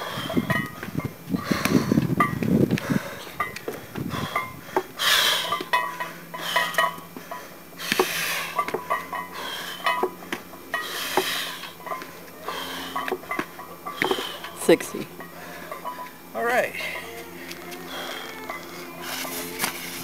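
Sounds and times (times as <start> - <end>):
heavy hissing breath: 0.0 - 0.6, 1.3 - 2.1, 2.7 - 14.6, 15.2 - 20.0
barbell plates clinking and rattling: 0.0 - 1.1, 5.2 - 16.2.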